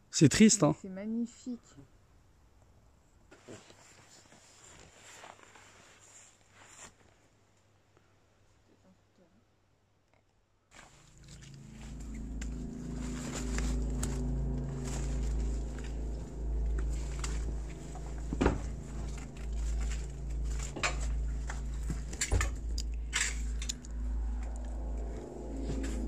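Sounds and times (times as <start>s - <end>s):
footsteps: 10.8s - 26.0s
steady low rumble: 11.0s - 26.0s.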